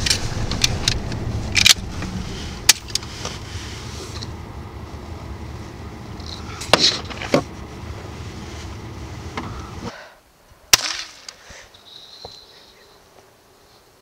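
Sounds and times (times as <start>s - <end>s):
rising and falling tone: 0.0s - 9.9s
vehicle driving rumble: 0.0s - 9.9s.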